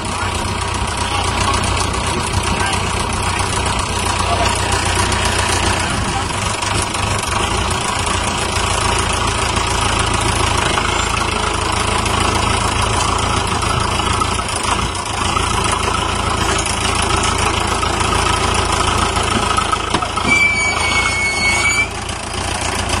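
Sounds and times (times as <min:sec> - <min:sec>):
tractor engine under load: 0:00.0 - 0:23.0
high whistle-like tone: 0:20.2 - 0:22.0.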